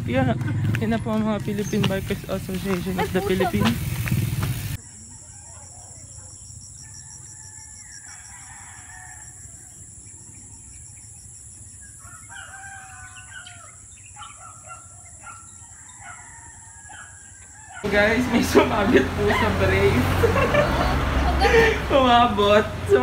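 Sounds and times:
roosters crowing: 0:06.8 - 0:10.0, 0:11.9 - 0:23.0.

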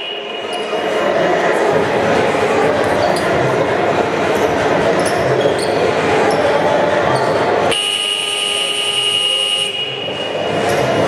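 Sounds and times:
basketball game noise: 0:00.0 - 0:11.0
scoreboard buzzer: 0:07.7 - 0:10.4.

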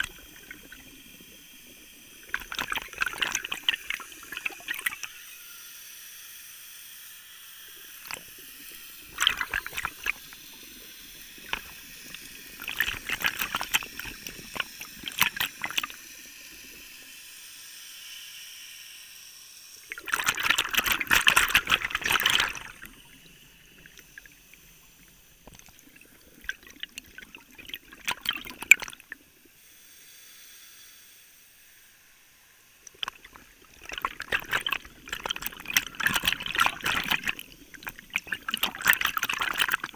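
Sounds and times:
air bubbling underwater: 0:00.0 - 0:05.1, 0:09.1 - 0:10.4, 0:11.3 - 0:16.0, 0:19.9 - 0:24.4, 0:25.4 - 0:29.2, 0:32.9 - 0:39.9
steady hiss: 0:29.0 - 0:33.8.

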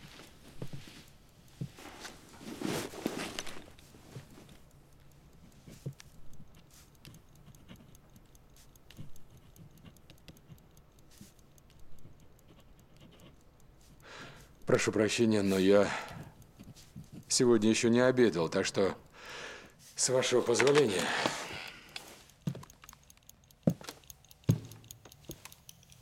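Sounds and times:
clothing and bag rustling: 0:00.0 - 0:04.6
faint clicks: 0:00.0 - 0:26.0
papers being leafed through: 0:01.8 - 0:04.6.

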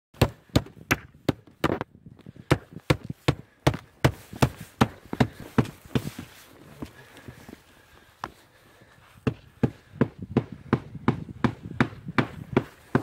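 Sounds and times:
footsteps on shingle roof: 0:00.2 - 0:13.0.

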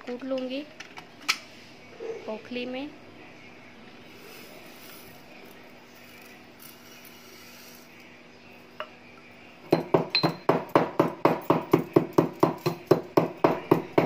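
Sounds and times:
stone pestle pounding in mortar: 0:09.7 - 0:14.0.

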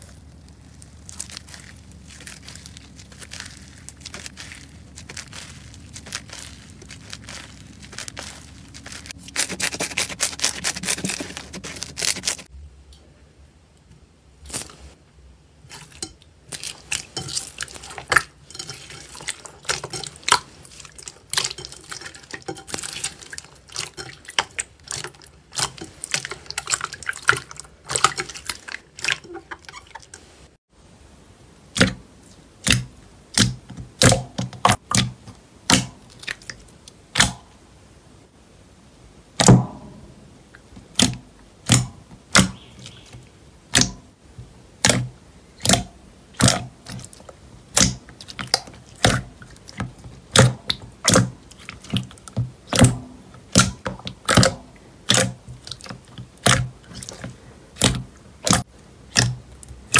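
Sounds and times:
slime with beads crackling: 0:00.0 - 0:12.5, 0:15.7 - 0:30.2, 0:46.4 - 0:59.9
thick slime popping: 0:00.0 - 0:12.5, 0:40.9 - 0:43.0, 0:44.8 - 0:59.9.

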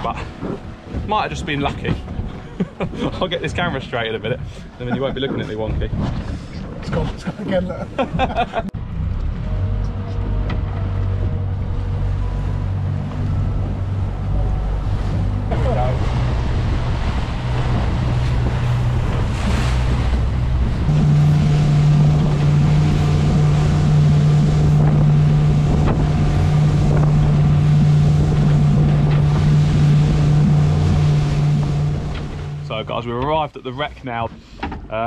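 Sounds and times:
wind buffeting microphone: 0:00.0 - 0:33.4
outboard engines humming: 0:00.0 - 0:35.0
water rushing past hull: 0:08.0 - 0:34.5.

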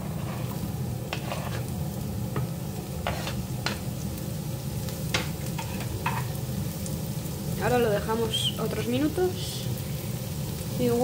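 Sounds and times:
spatula scrapes and knocks: 0:00.0 - 0:01.7, 0:02.4 - 0:03.8
vegetables sizzling in oil: 0:00.0 - 0:11.0.

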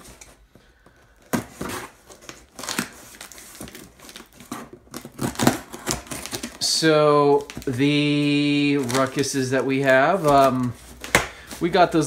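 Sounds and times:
scissors cutting packing tape: 0:01.3 - 0:06.6.

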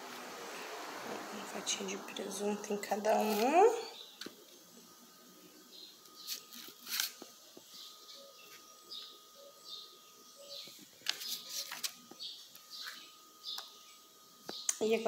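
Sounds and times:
faint high chirps: 0:07.5 - 0:14.8.

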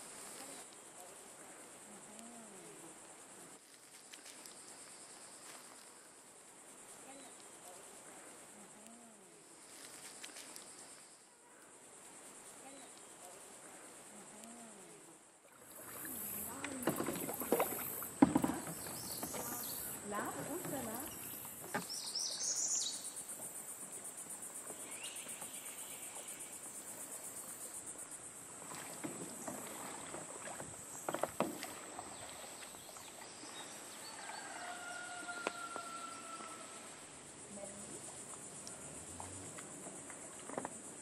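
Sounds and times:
water stirring from paddling: 0:15.4 - 0:34.8
paddle knocking on hull: 0:15.8 - 0:22.0, 0:28.6 - 0:32.6.

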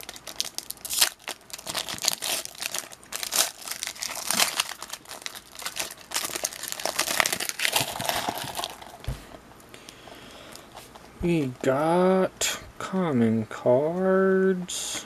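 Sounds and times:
wrapper crinkling: 0:00.0 - 0:09.1.

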